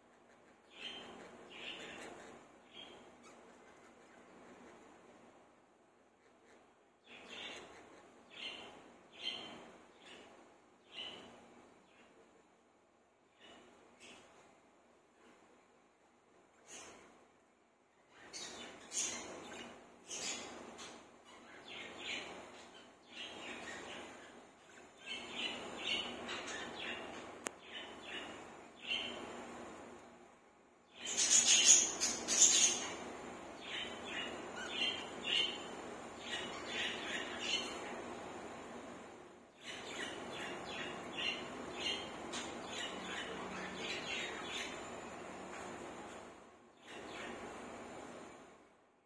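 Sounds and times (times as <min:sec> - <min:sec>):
budgerigars chirping: 0:00.7 - 0:04.2, 0:07.1 - 0:10.3, 0:18.2 - 0:29.4, 0:31.0 - 0:38.0, 0:39.6 - 0:44.9.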